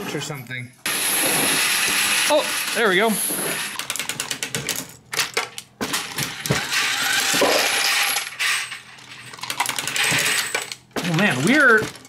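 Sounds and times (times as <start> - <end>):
brass cases clinking: 4.7 - 12.0.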